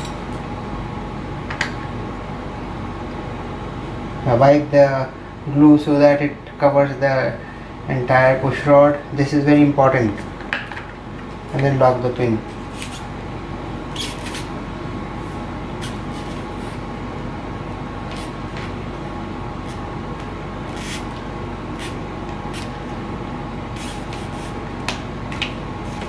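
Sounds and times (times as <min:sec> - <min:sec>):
background hum and hiss: 0:00.0 - 0:26.0.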